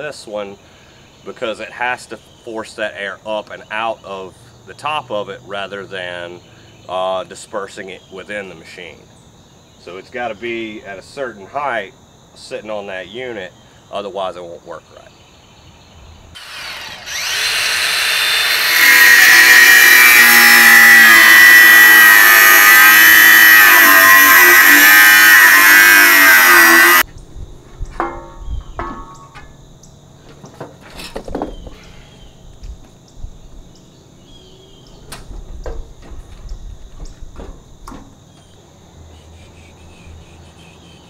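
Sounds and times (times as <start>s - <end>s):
power tool cutting steel: 16.4s - 27.0s.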